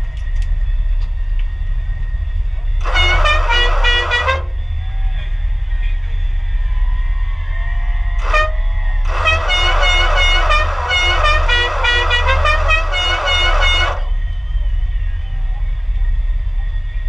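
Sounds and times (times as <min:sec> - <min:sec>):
car horn honking: 0:02.8 - 0:04.6, 0:08.2 - 0:14.2.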